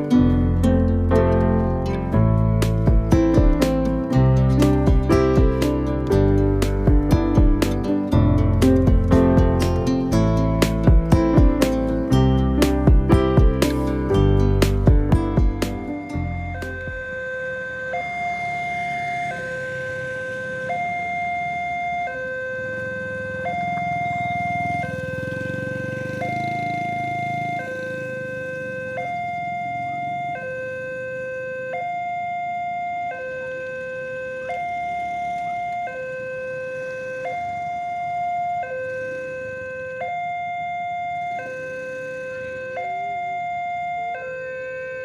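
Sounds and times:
motorbike engine rumbling: 0.0s - 30.7s
two-tone level crossing alarm: 15.1s - 45.0s.

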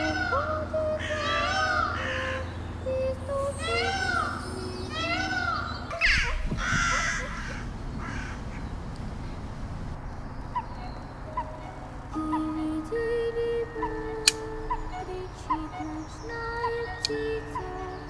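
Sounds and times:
faint chirps: 0.0s - 6.4s
crow cawing: 1.0s - 2.5s, 5.1s - 8.6s.

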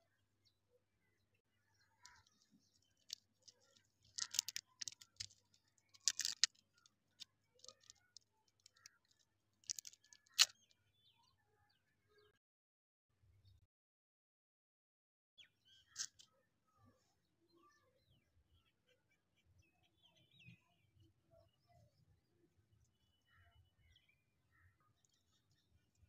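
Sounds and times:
wrapper crinkling: 3.0s - 6.6s, 7.6s - 8.0s, 9.6s - 10.5s.

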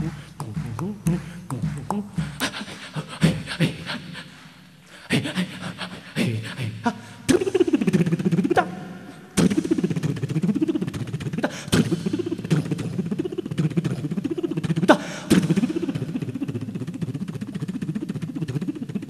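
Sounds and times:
sharp drum slaps: 0.0s - 2.6s, 9.4s - 12.9s
fast solo percussion: 0.0s - 3.9s, 9.4s - 19.0s.

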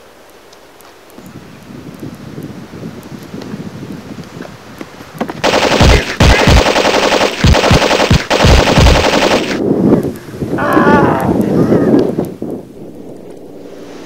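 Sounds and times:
machine-gun fire: 5.4s - 9.6s.

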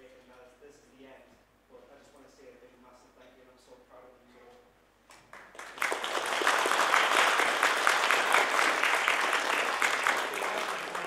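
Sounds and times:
audience applause: 5.3s - 11.0s.

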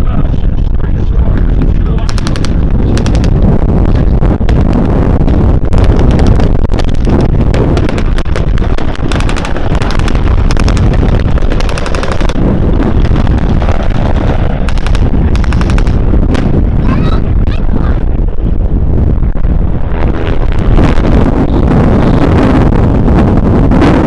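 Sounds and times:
piston aircraft engines rumbling: 0.0s - 24.0s
rapid machine-gun fire: 1.9s - 16.6s.

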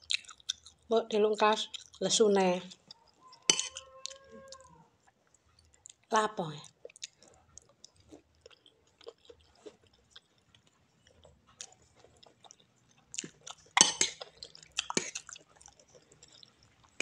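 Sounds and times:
person chewing: 0.0s - 0.9s, 1.6s - 2.0s, 2.7s - 17.0s
spoon clinking in ceramic bowl: 3.5s - 3.8s.

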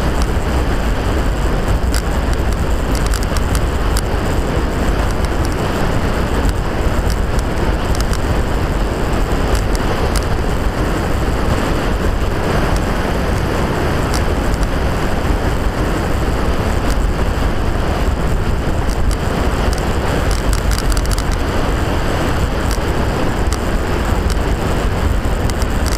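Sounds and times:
faint clicks and rattles: 0.0s - 10.5s, 18.0s - 25.9s
wind rush and rolling rumble: 0.0s - 25.9s.

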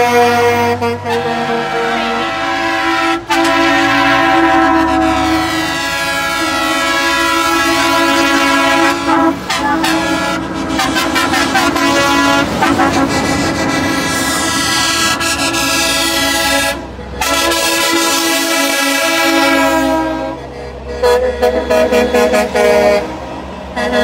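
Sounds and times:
truck air horns blasting: 0.0s - 24.0s.

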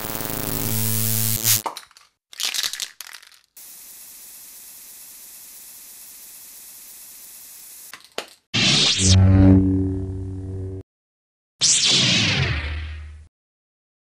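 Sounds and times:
short crackling bursts: 0.0s - 1.6s
steady high-pitched hiss: 3.6s - 7.9s.

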